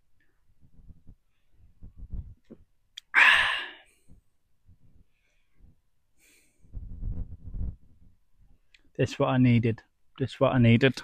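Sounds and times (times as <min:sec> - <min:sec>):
man exhaling sharply: 0:03.1 - 0:03.9.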